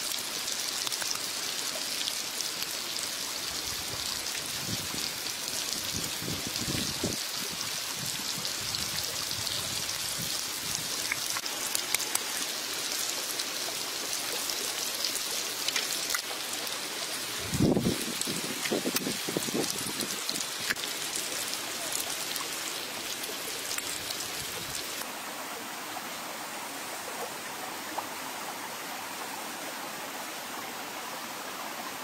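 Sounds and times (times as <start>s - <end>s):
small crackles: 11.0s - 13.1s, 15.0s - 16.6s.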